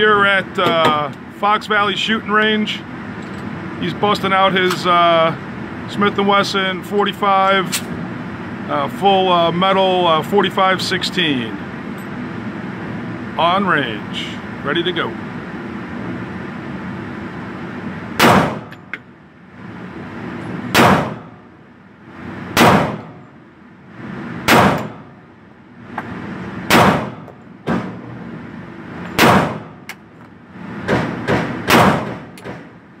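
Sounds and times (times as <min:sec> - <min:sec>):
steady background hum: 0:00.0 - 0:33.0
pistol shots indoors: 0:18.2 - 0:18.7, 0:20.7 - 0:21.4, 0:22.6 - 0:23.2, 0:24.5 - 0:25.1, 0:26.7 - 0:28.0, 0:29.2 - 0:29.8, 0:30.9 - 0:32.6.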